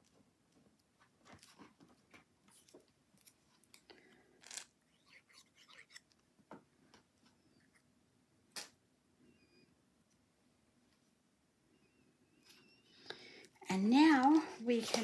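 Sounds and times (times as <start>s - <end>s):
paper rustling: 14.2s - 15.0s.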